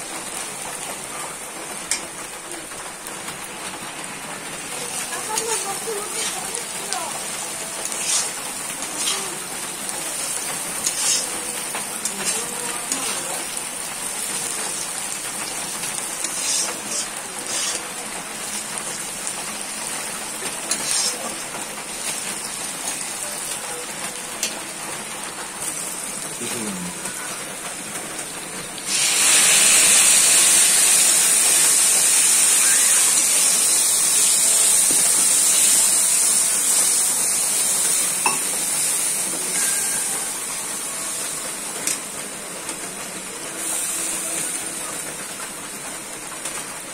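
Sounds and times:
onions sizzling in oil: 0:00.0 - 0:46.9
metal spatula scraping: 0:05.3 - 0:06.6, 0:07.8 - 0:09.3, 0:10.2 - 0:11.4, 0:12.0 - 0:13.6, 0:15.9 - 0:17.8, 0:20.7 - 0:21.4.

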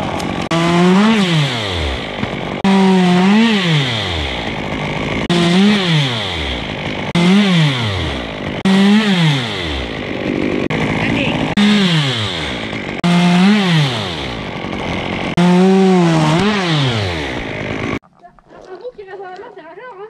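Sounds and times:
chainsaw cutting: 0:00.0 - 0:18.0.

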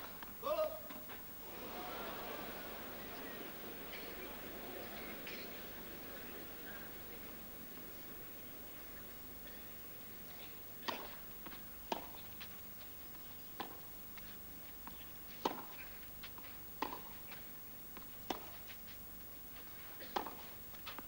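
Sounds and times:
racket hitting tennis ball: 0:01.4 - 0:12.2, 0:16.8 - 0:17.1
tennis ball bouncing: 0:01.4 - 0:12.3, 0:13.6 - 0:13.9, 0:15.4 - 0:15.8, 0:16.8 - 0:17.2, 0:18.0 - 0:18.6, 0:20.1 - 0:20.4.

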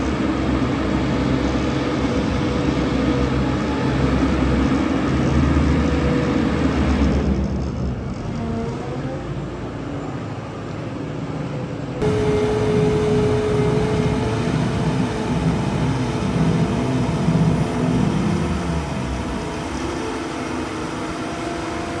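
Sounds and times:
feed mixer machine running: 0:12.0 - 0:22.0
steady machine whine: 0:12.0 - 0:22.0
wavering low drone: 0:12.0 - 0:22.0.

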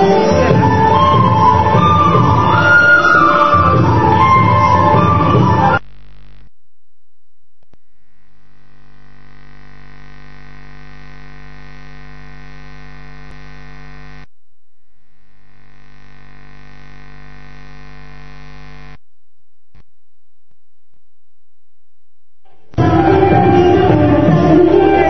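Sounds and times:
electrical mains hum and buzz: 0:07.4 - 0:22.8.

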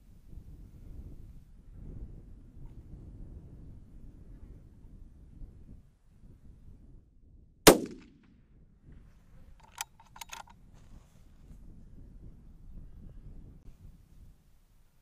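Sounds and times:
rifle shot: 0:07.7 - 0:08.3
metallic clicks: 0:09.6 - 0:10.5.

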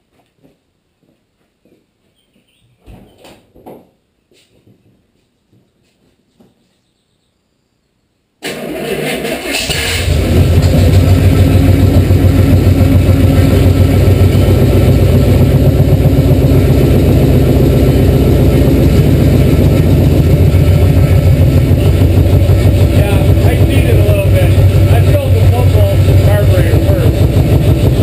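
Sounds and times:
truck engine starting and running: 0:08.4 - 0:28.0.

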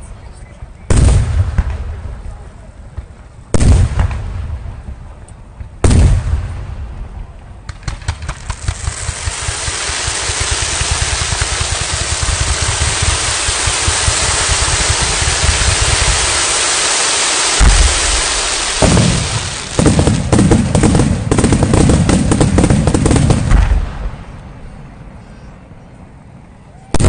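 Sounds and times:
fireworks barrage of bangs and crackling: 0:00.9 - 0:24.4
firework shell bursts: 0:07.7 - 0:23.7.

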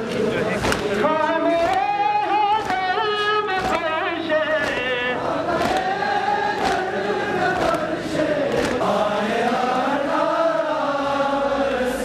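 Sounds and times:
men chanting a lament: 0:00.0 - 0:12.0
chest-beating slaps: 0:00.6 - 0:01.0, 0:02.6 - 0:06.0, 0:06.6 - 0:07.0, 0:08.5 - 0:08.9.

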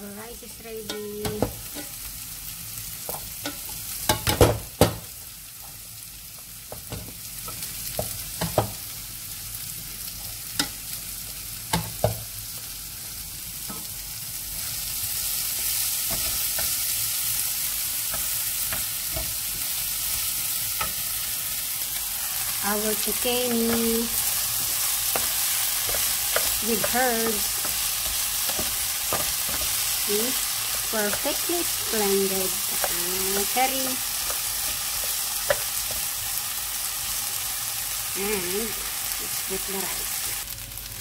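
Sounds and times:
frying sizzle: 0:00.0 - 0:41.0
spatula scraping and knocking pot: 0:24.6 - 0:29.9.

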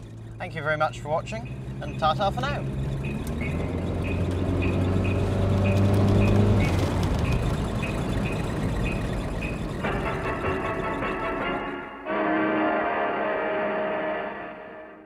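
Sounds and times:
light ticking: 0:00.0 - 0:10.2
car engine running: 0:00.0 - 0:11.9.

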